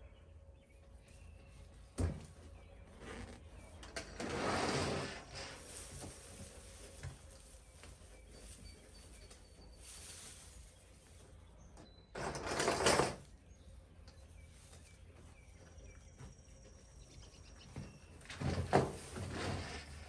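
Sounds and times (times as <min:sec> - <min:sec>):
fabric and fronds rustling: 0:02.5 - 0:11.7.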